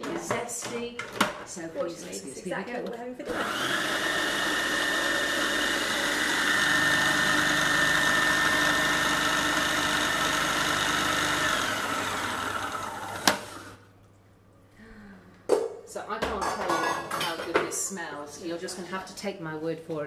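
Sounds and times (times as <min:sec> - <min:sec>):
food processor whining: 0:03.3 - 0:13.8.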